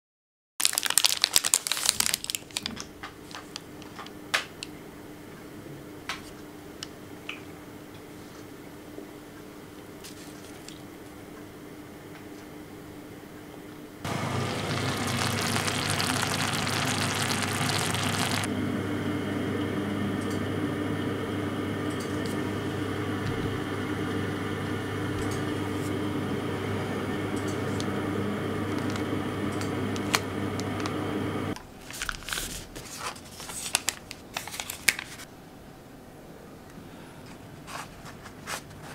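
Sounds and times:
low machine hum: 13.8s - 31.6s.

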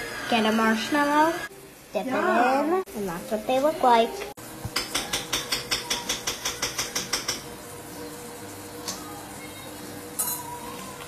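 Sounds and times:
utensil tapping against bowl: 4.7s - 7.5s.

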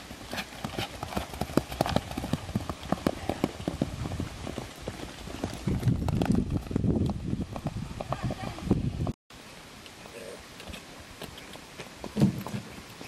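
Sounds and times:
hooves on turf: 0.0s - 9.1s.

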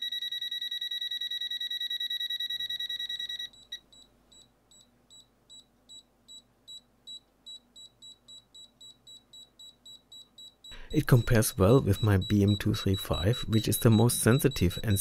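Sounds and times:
rapid loud alarm beeping: 0.0s - 3.9s, 8.8s - 15.0s.

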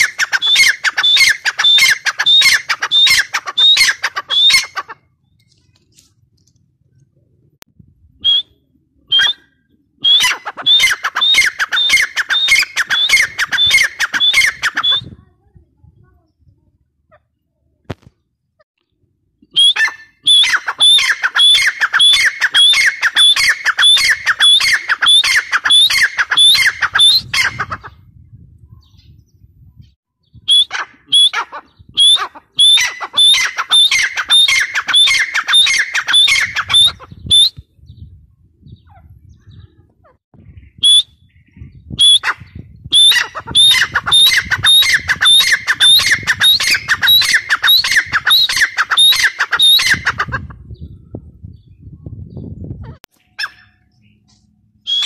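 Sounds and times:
bird calling sharp repeated notes: 0.0s - 5.1s, 8.2s - 15.2s, 19.4s - 27.9s, 30.4s - 37.7s, 40.6s - 50.4s, 53.0s - 55.0s.

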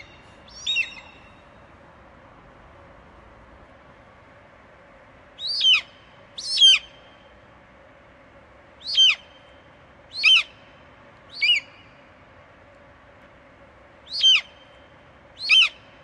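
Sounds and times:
hawk calling: 0.0s - 1.3s, 5.4s - 6.9s, 8.8s - 9.4s, 10.1s - 10.6s, 11.3s - 11.8s, 14.1s - 14.7s, 15.4s - 15.8s.

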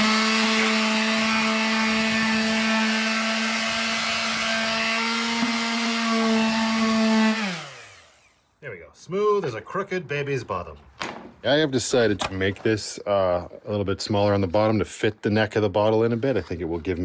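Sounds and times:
electric sander on wood: 0.0s - 8.4s.

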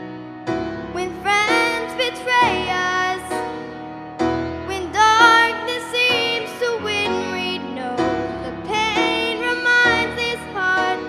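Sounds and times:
piano accompaniment: 0.0s - 11.0s
girl singing into microphone: 0.9s - 3.4s, 4.7s - 11.0s.

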